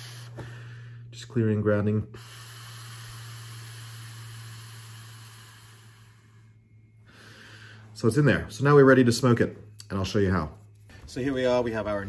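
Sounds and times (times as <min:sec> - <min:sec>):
breath blown through a fist: 0:02.2 - 0:07.8.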